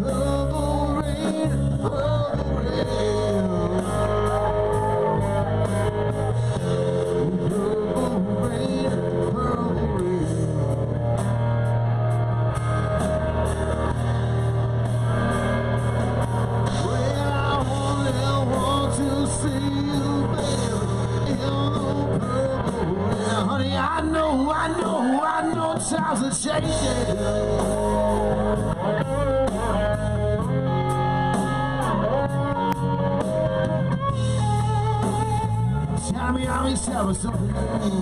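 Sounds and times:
person singing: 0.0s - 14.0s, 16.5s - 33.7s, 35.0s - 38.0s
live rock and roll band: 0.0s - 38.0s.

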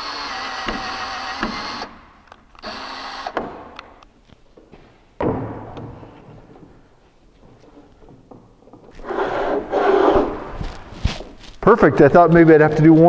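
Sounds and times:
power tool running: 2.6s - 3.4s
knocks and handling noise: 3.4s - 9.1s
heavy thump on workbench: 5.2s - 6.0s.

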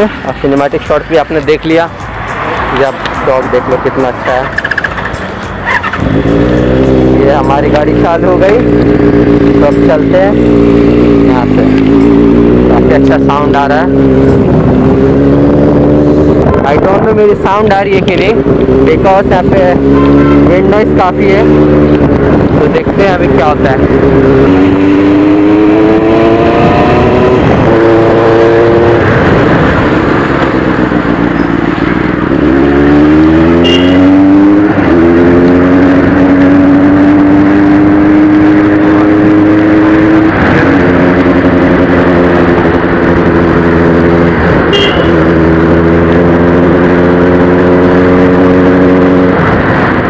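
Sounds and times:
motorcycle engine revving: 0.0s - 50.0s
wind noise on microphone: 4.8s - 7.2s, 13.4s - 50.0s.

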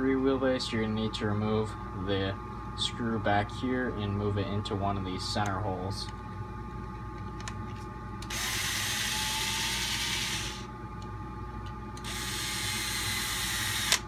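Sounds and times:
electric screwdriver running: 8.3s - 10.7s, 12.0s - 14.0s.

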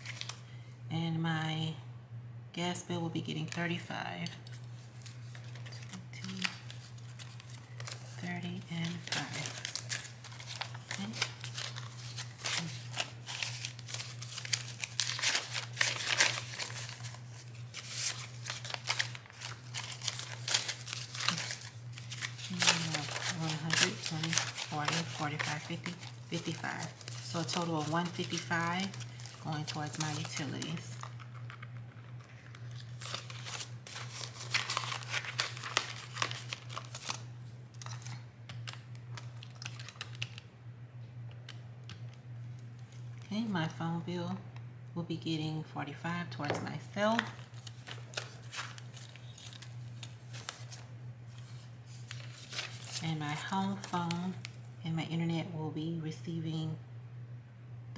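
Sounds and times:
banknotes rustling: 0.0s - 0.4s, 4.4s - 40.4s, 46.4s - 54.6s
steady low hum: 0.0s - 57.9s.

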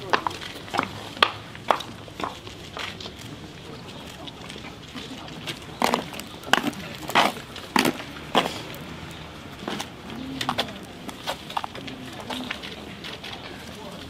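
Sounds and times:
pigeons cooing: 8.4s - 11.3s.

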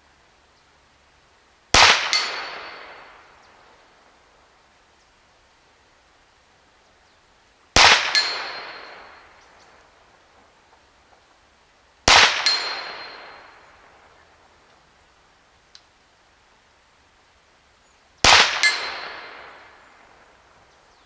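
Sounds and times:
air pistol shots: 1.8s - 2.7s, 7.8s - 8.8s, 12.1s - 13.1s, 18.2s - 19.5s.

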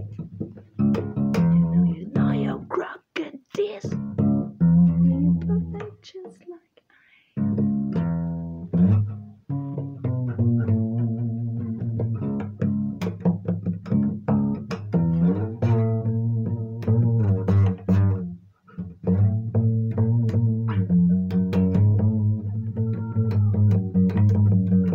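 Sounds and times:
acoustic guitar chords: 0.0s - 3.0s.

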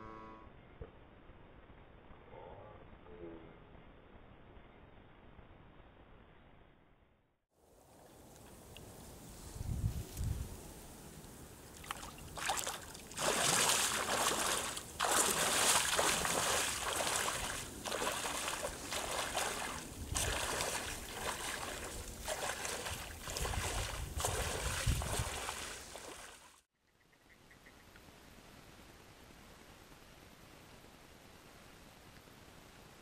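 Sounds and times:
wading through shallow water: 11.7s - 26.6s.

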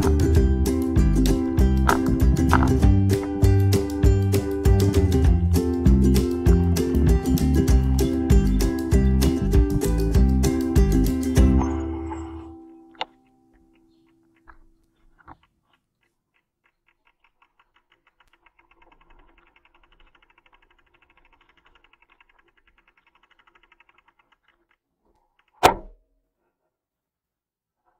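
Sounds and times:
bicycle freewheel ticking: 0.0s - 11.4s, 15.6s - 25.6s
sharp knock: 25.6s - 26.0s.

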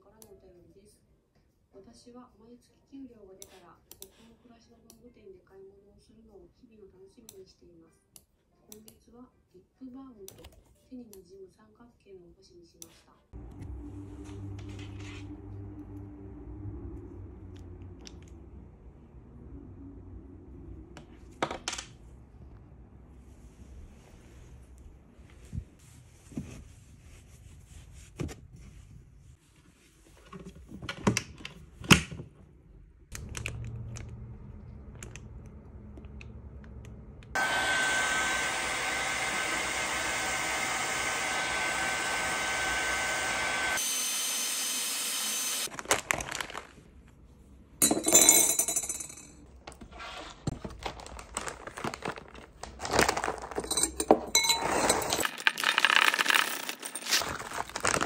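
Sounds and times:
hair dryer whine: 13.4s - 18.5s, 33.5s - 45.7s
metal spoon clinking glass: 53.7s - 55.3s.

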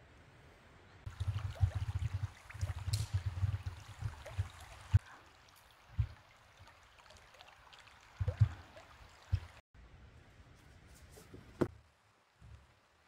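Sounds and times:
wind buffeting microphone: 1.0s - 5.0s
creek trickling: 1.0s - 9.6s.

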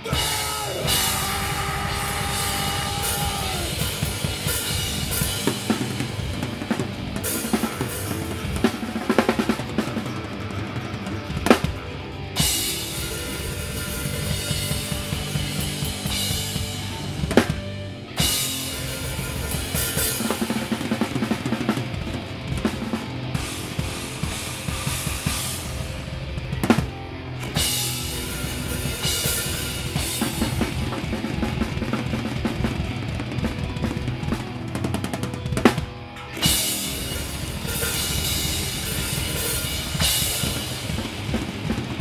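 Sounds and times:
rock drum kit played hard: 0.0s - 42.0s.

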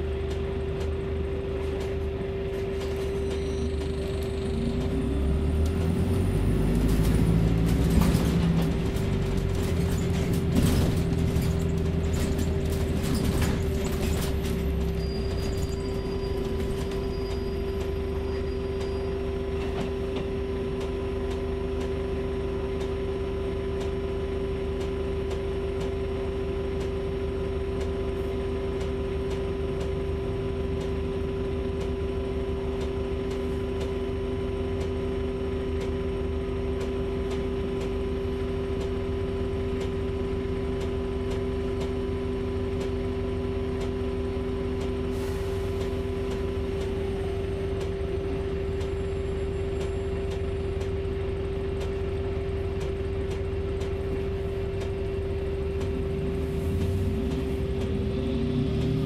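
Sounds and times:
electric hum and whine: 0.0s - 12.8s.

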